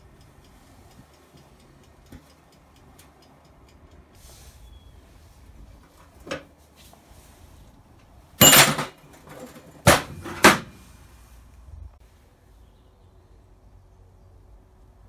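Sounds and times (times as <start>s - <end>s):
metal tools scraping on steel: 8.4s - 9.8s
metal tools clanking: 8.4s - 10.5s.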